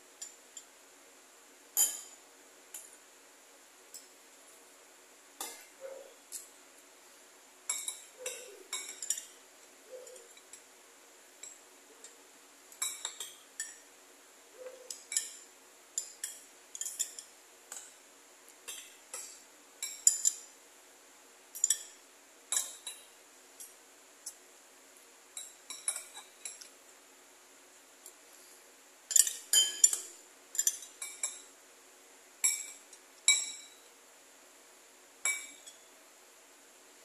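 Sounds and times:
metal spoon clinking against bowl: 1.8 - 2.2, 7.7 - 9.4, 16.0 - 17.9, 21.6 - 23.1, 25.4 - 26.7, 29.1 - 31.5, 32.4 - 33.8, 35.2 - 35.8.

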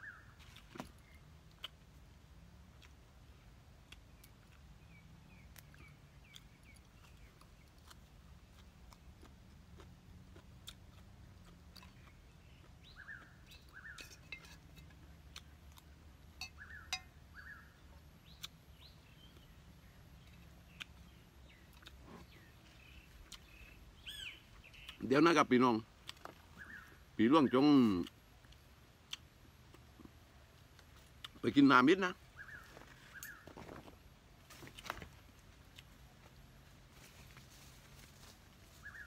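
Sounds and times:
bird chirps: 0.0 - 0.4, 11.8 - 15.4, 16.3 - 25.5, 26.5 - 28.1, 31.5 - 33.6, 38.7 - 39.0.

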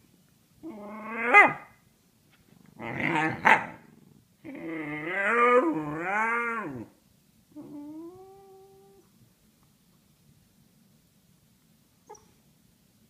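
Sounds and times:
puppy howling: 0.6 - 1.7, 4.5 - 6.9.

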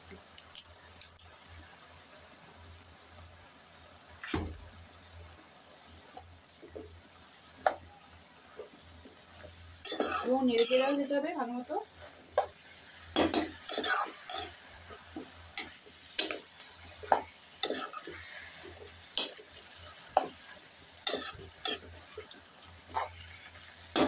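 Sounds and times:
metal spatula scraping pan: 9.8 - 11.1, 13.2 - 14.6, 17.6 - 18.6, 21.0 - 21.9.

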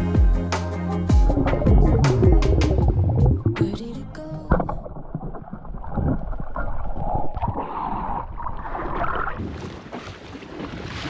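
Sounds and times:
muffled underwater gurgle: 1.2 - 9.4
water splashing: 1.2 - 11.0.

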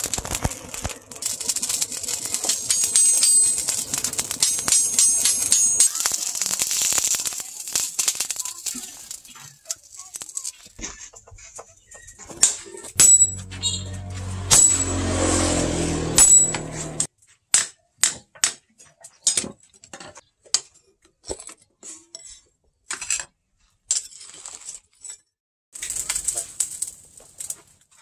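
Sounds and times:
hammer striking metal on anvil: 2.5 - 6.0, 13.0 - 17.1
low hum: 12.9 - 17.1.

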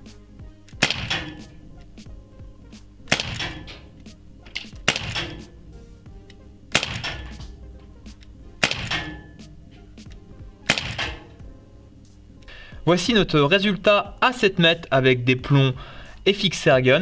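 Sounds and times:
pellet revolver shots: 0.7 - 1.6, 3.0 - 5.6, 6.7 - 9.6, 10.6 - 11.4.

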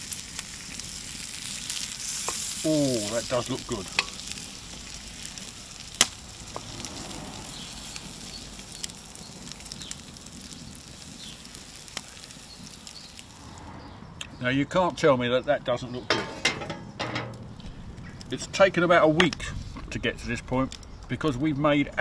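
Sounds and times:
bacon sizzling in frying pan: 0.0 - 13.5.

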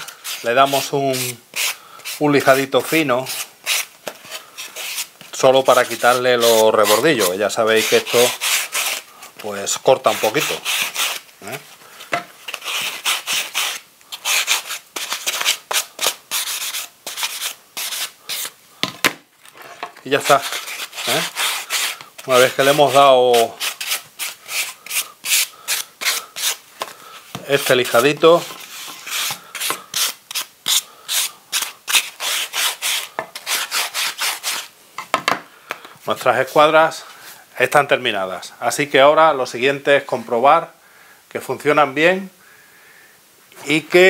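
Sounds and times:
sanding block scratching wood: 0.0 - 9.1, 9.8 - 11.2, 12.5 - 18.5, 20.1 - 26.6, 27.6 - 34.7.

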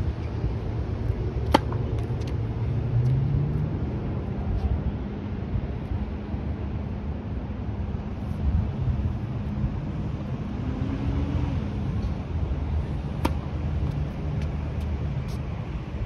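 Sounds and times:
steady low rumble: 0.0 - 10.6
tennis racket hitting ball: 1.4 - 2.3, 13.1 - 14.0.

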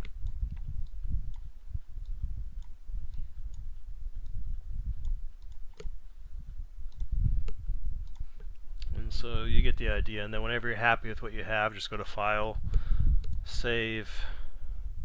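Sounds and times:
computer mouse clicking: 0.0 - 9.0, 12.6 - 13.4.

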